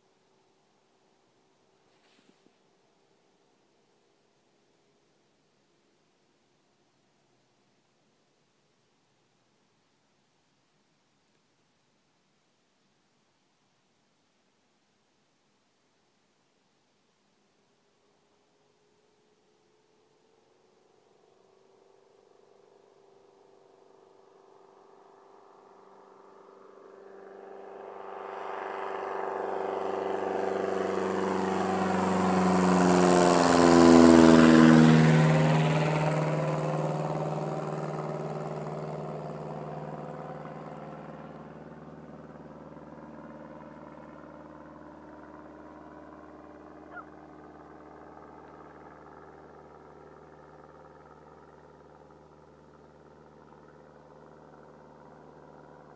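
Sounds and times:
light plane passing low: 17.8s - 55.9s.

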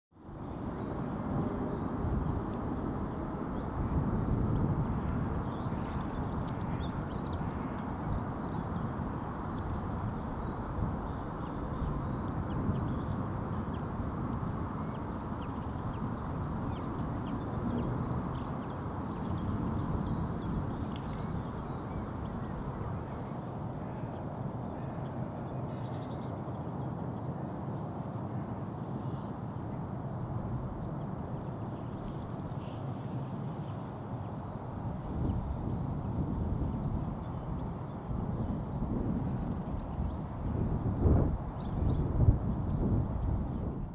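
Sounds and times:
sparrows chirping: 14.8s - 22.9s.

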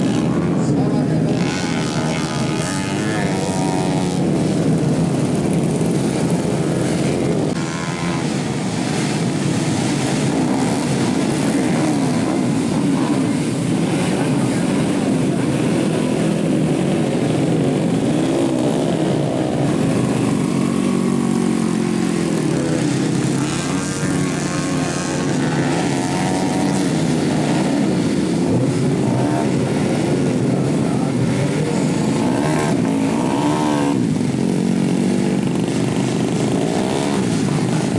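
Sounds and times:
dirt bike engines revving: 0.0s - 37.9s.

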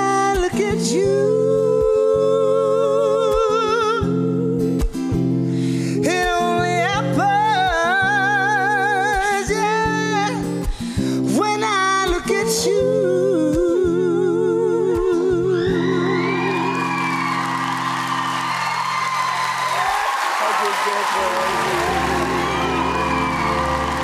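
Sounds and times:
woman singing a slow ballad: 0.0s - 16.8s
audience cheering and applause: 15.8s - 24.0s
sustained guitar chords: 21.4s - 24.0s.

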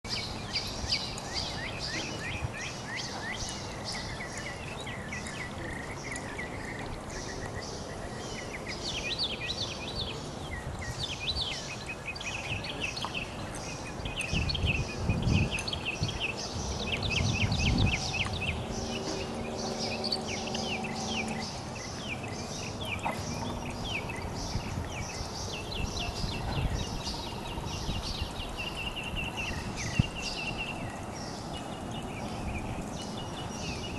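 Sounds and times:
birds chirping: 0.0s - 33.9s
low rumbling noise: 0.1s - 33.9s
low steady drone: 16.4s - 28.7s.

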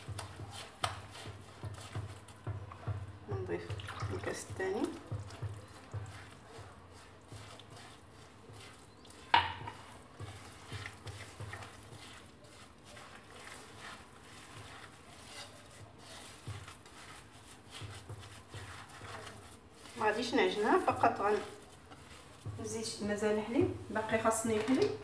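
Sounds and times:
wet rubbing of dough by hand: 0.0s - 25.0s.

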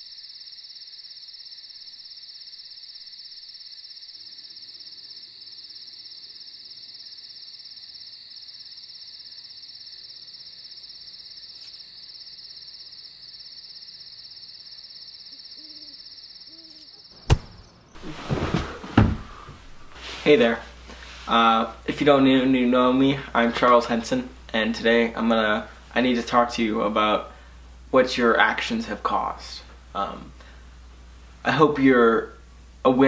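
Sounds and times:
crickets trilling: 0.0s - 29.4s
sharp knock: 17.2s - 17.7s.

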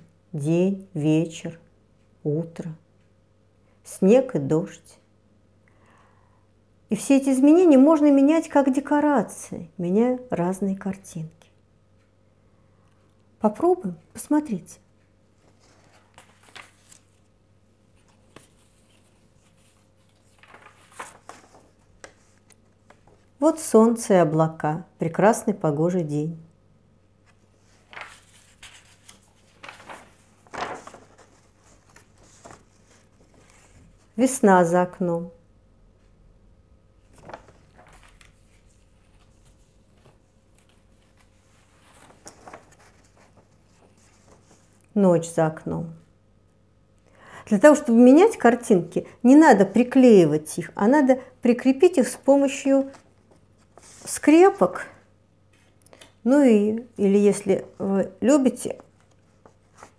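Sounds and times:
paper sheets rustling: 15.4s - 17.3s, 17.9s - 23.4s, 27.2s - 34.2s, 37.0s - 44.9s, 51.9s - 54.7s, 57.3s - 59.9s
light paper tick: 27.8s - 33.5s.

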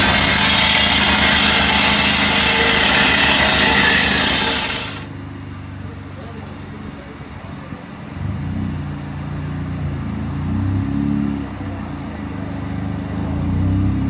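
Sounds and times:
car engine revving: 0.0s - 5.1s.

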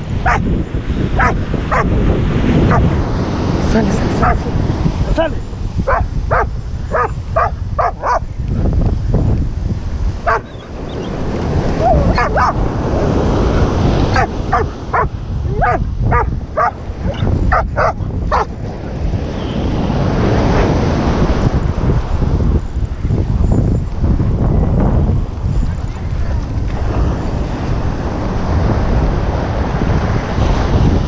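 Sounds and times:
surf breaking on beach: 0.0s - 31.0s
dog barking: 0.2s - 0.5s, 1.2s - 1.9s, 2.7s - 2.9s, 4.2s - 4.4s, 5.9s - 8.3s, 10.2s - 10.7s, 11.8s - 18.6s.

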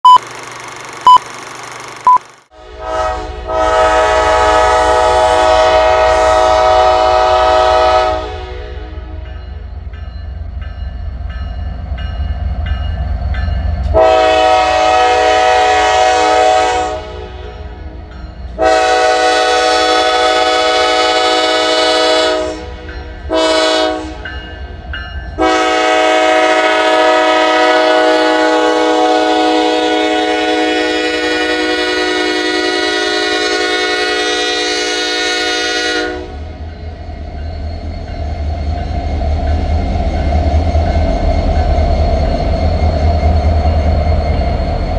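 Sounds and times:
locomotive air horn blasts: 2.5s - 9.3s, 13.9s - 17.8s, 18.6s - 24.3s, 25.4s - 36.6s.

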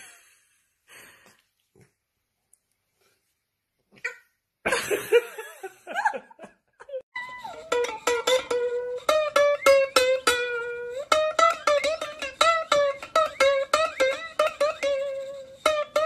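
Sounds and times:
bouncy plucked string music: 7.1s - 16.0s.

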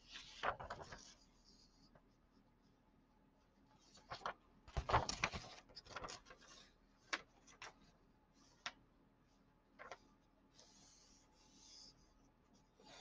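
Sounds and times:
hand brushing over paper: 10.5s - 13.0s.

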